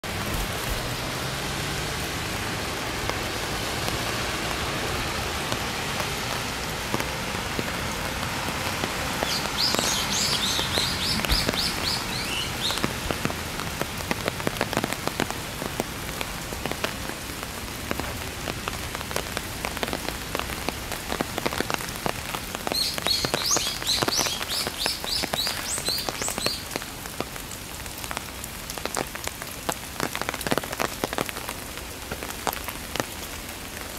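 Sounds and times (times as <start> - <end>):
rain falling through trees: 0.0 - 33.9
bird singing high notes: 9.3 - 12.8.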